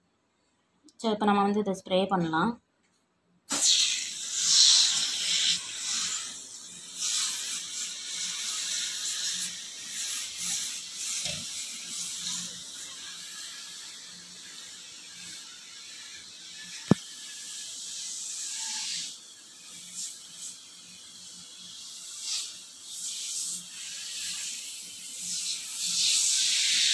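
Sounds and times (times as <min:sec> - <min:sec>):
aerosol can spraying: 0:03.5 - 0:26.9.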